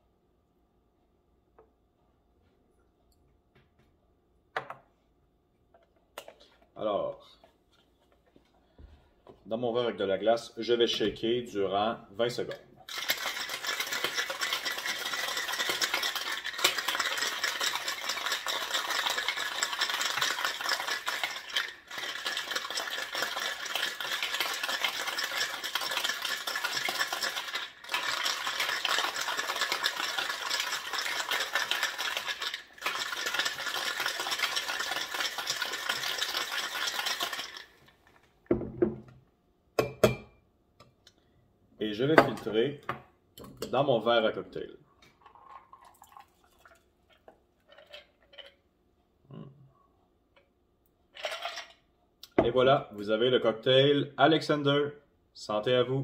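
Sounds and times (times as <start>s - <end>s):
ice rattling in cocktail shaker: 12.8s - 38.1s, 45.2s - 48.6s, 51.2s - 51.8s.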